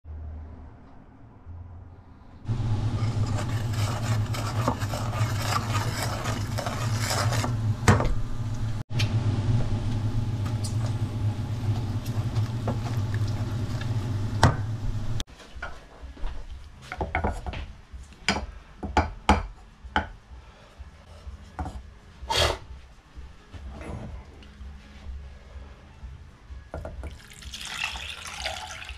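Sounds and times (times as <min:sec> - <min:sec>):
steady low hum: 0:01.8 - 0:15.2
wooden spoon scraping saucepan: 0:02.8 - 0:07.7.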